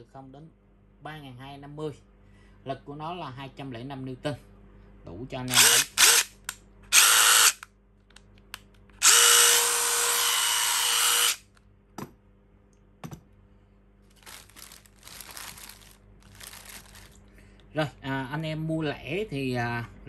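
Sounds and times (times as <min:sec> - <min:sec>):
impact driver whining: 0:05.5 - 0:07.6, 0:09.0 - 0:11.4
plastic bag crinkling: 0:14.1 - 0:17.4.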